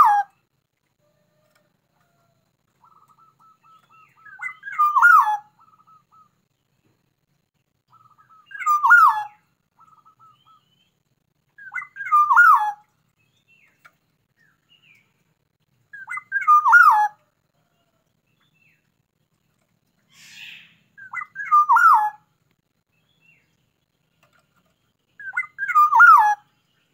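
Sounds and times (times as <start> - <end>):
bird singing whistled phrase: 4.2 - 5.4, 11.6 - 12.8, 16.0 - 17.1, 20.1 - 22.2, 25.2 - 26.4.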